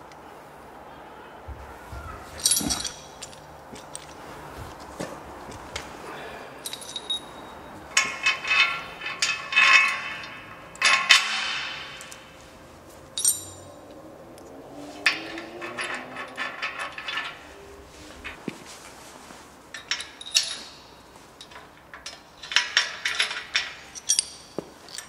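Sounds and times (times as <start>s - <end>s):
metal bolt clinking and clanking: 2.0s - 4.2s, 6.6s - 12.5s, 13.1s - 14.0s, 15.0s - 18.6s, 19.7s - 25.0s.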